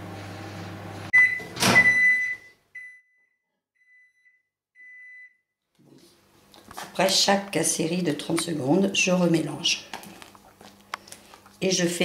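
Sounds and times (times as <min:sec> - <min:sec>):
microwave oven humming: 0:00.0 - 0:02.5
microwave high beeps: 0:01.1 - 0:05.4.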